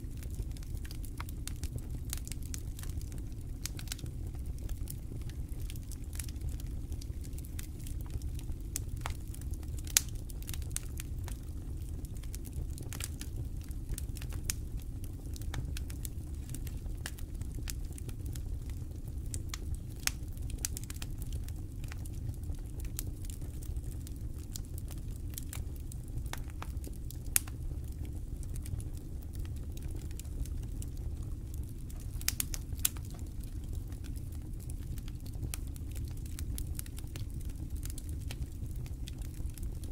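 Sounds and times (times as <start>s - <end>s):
campfire crackling: 0.0s - 39.9s.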